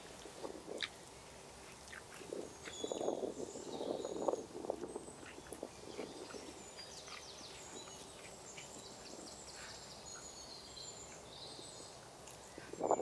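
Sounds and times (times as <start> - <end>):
soft squishes of food mixed by hand: 0.0 - 3.6
faint birdsong chirps: 0.0 - 13.0.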